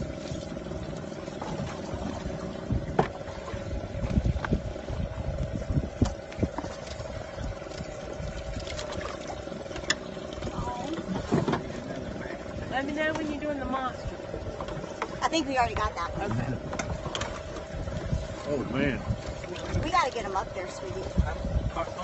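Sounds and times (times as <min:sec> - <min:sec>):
steady hum: 0:00.0 - 0:22.0
knocks and thumps of fish handling: 0:01.4 - 0:03.3, 0:07.7 - 0:11.8, 0:14.5 - 0:18.2.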